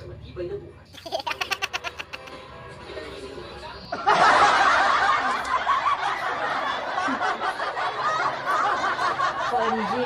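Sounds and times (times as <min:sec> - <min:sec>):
people giggling and laughing: 0:01.0 - 0:02.6, 0:03.8 - 0:10.0.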